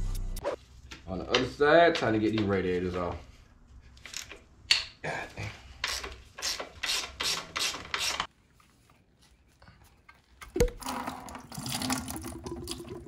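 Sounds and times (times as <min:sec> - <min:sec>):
coolant splashing into plastic bucket: 0:10.6 - 0:13.0.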